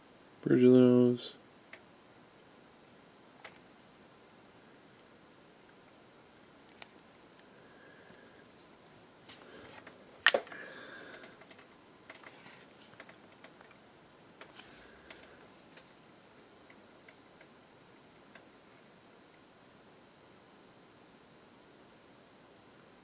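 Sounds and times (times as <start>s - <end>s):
small clicks and scratching: 11.3s - 13.8s.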